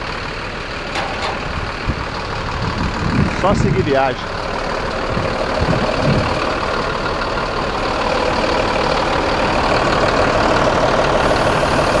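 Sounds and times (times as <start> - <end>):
diesel bus engine idling: 0.0 - 12.0.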